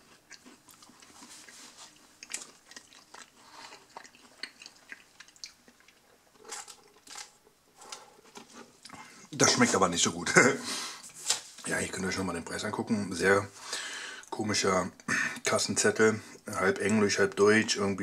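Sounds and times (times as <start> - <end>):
person chewing: 0.0 - 9.1.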